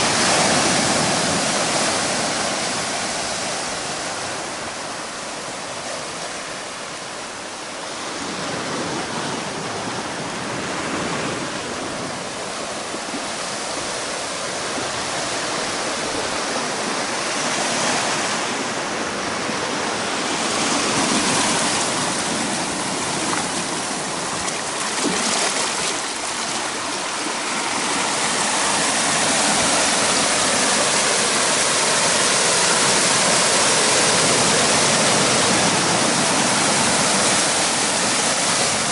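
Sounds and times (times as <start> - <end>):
ocean surf breaking on rocks: 0.0 - 38.9.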